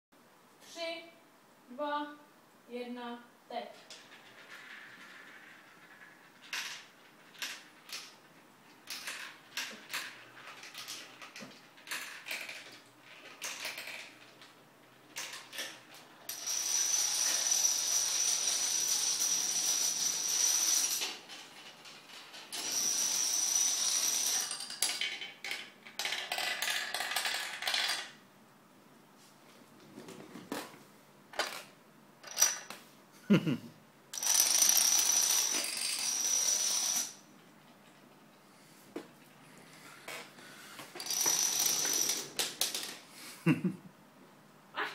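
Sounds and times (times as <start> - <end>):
plastic dominoes clattering: 3.8 - 28.2, 31.4 - 32.8, 34.1 - 37.3, 40.0 - 43.1.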